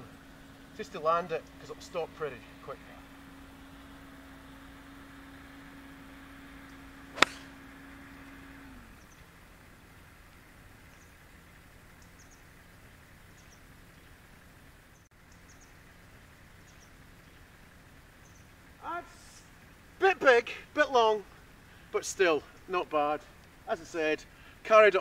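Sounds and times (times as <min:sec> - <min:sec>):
low steady hum: 0:00.0 - 0:25.0
golf club striking ball: 0:06.7 - 0:08.0
faint bird chirps: 0:12.0 - 0:12.5, 0:14.9 - 0:15.8.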